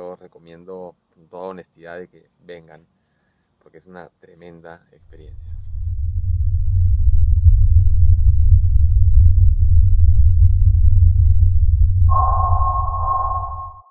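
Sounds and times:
deep synthesized drone: 0:05.8 - 0:13.9
higher steady tone: 0:12.1 - 0:13.9.

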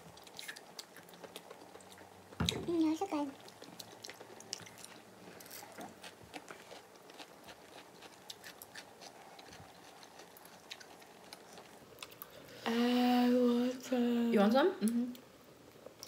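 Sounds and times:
chewing: 0:00.0 - 0:02.3, 0:03.3 - 0:12.3.

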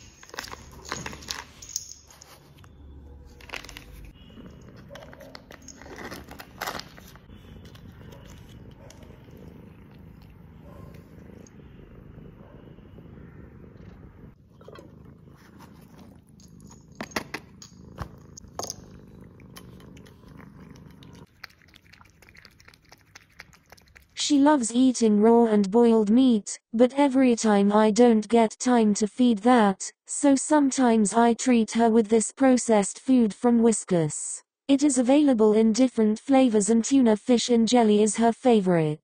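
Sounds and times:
cat purring: 0:03.5 - 0:24.2
foil pouch crinkling: 0:05.2 - 0:08.5.

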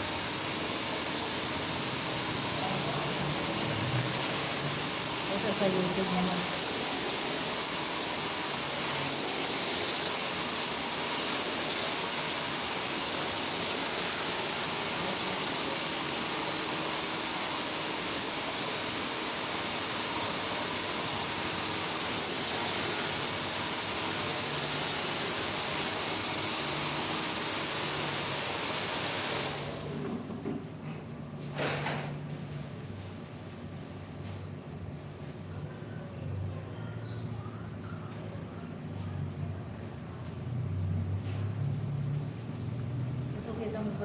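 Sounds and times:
hair dryer blowing: 0:00.0 - 0:30.3.

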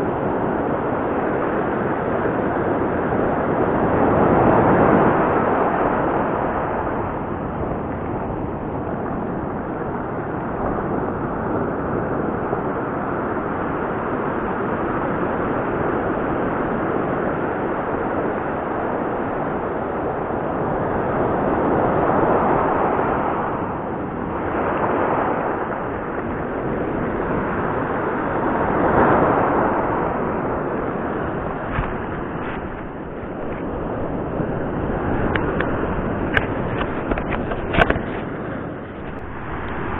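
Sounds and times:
waves breaking on gravel beach: 0:28.8 - 0:39.9.

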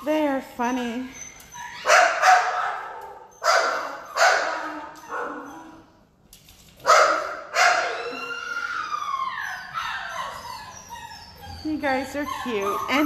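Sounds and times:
dog crying: 0:00.8 - 0:06.0, 0:06.9 - 0:13.0
small dogs barking: 0:01.8 - 0:05.8, 0:06.8 - 0:08.3.

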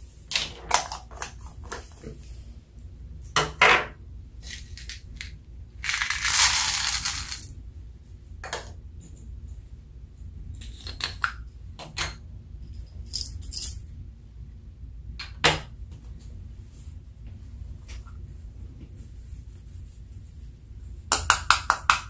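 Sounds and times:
beads pouring onto glass: 0:05.8 - 0:07.5.

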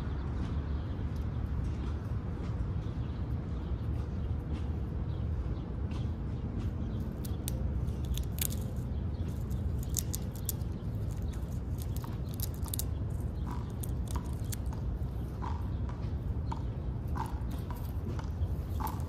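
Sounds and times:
squirrel cracking peanut shell: 0:07.0 - 0:15.1.

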